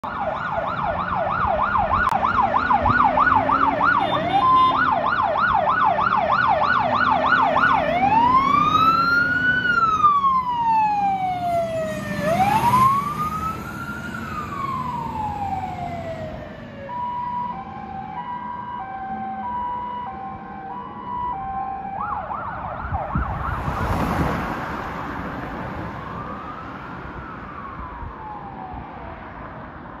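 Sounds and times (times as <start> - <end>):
fire engine siren: 0.0 - 30.0.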